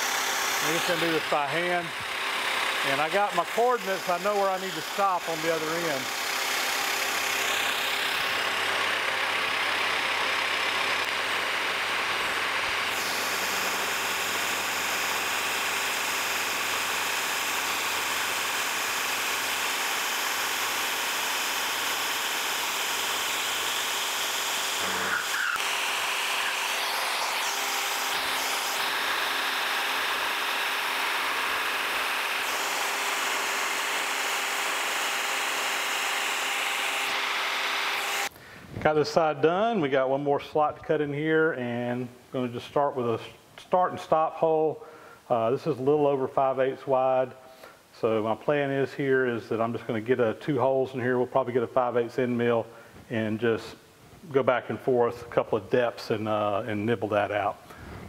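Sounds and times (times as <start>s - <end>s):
milling machine cutting steel: 0.0s - 38.3s.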